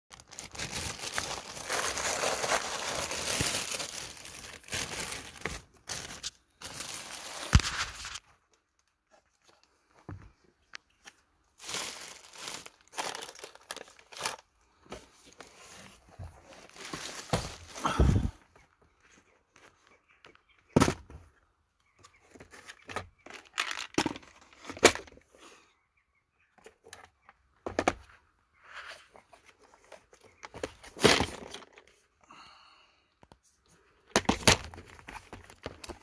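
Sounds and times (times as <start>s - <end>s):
plastic packaging crinkling: 0.1s - 9.7s, 11.6s - 14.5s.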